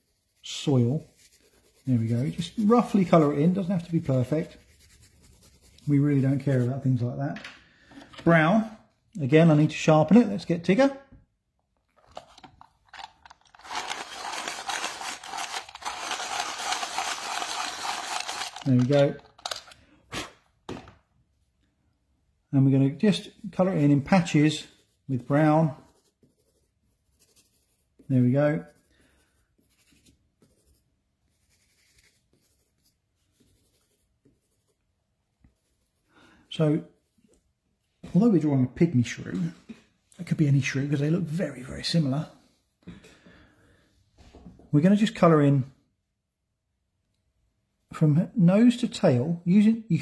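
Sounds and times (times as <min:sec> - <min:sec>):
pencil scratching on paper: 0:00.0 - 0:06.8, 0:24.2 - 0:34.8
pencil sharpener rasping: 0:13.6 - 0:18.6.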